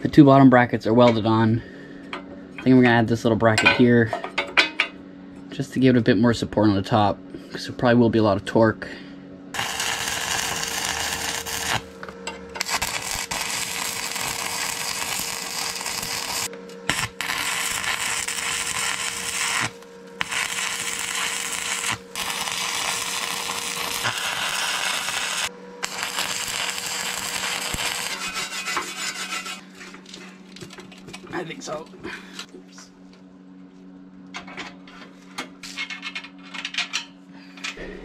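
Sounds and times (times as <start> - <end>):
welding arc crackling: 9.6 - 29.6
wire brush scrubbing metal: 12.6 - 29.9.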